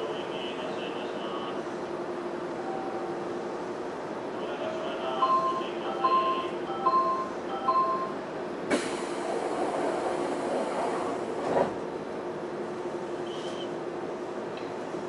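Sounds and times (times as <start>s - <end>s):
electronic door chime beeps: 5.3s - 8.2s
air hiss: 8.7s - 11.2s.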